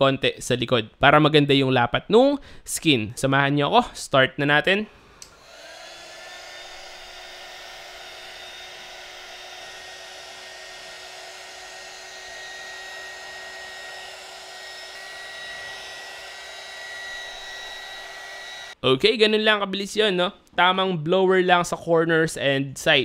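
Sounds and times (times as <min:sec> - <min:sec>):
heat gun blowing air: 0:05.0 - 0:18.8.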